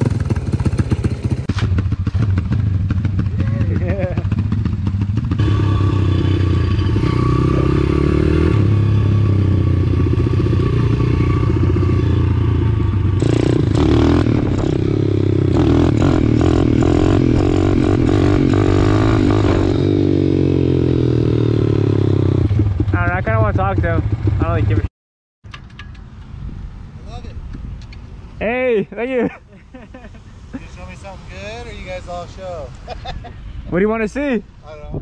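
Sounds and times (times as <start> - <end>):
pit bike engines running: 0.0 - 24.9.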